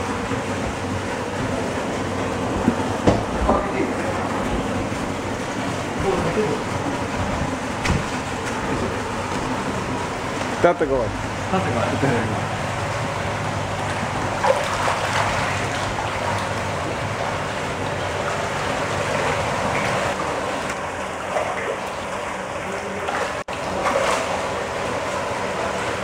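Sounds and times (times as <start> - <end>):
fish splashing in water: 12.5 - 26.0.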